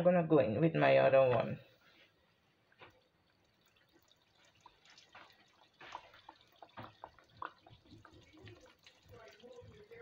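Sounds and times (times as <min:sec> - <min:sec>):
oil popping and crackling: 0:02.1 - 0:10.0.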